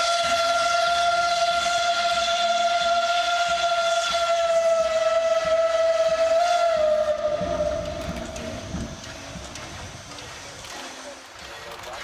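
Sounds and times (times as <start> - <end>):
steam locomotive whistle: 0.0 - 9.1.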